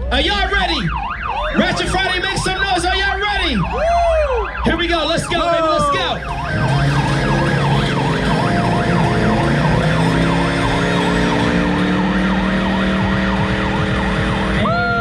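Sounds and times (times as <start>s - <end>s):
siren wailing in fast yelp: 0.0s - 15.0s
car engine revving: 6.2s - 15.0s.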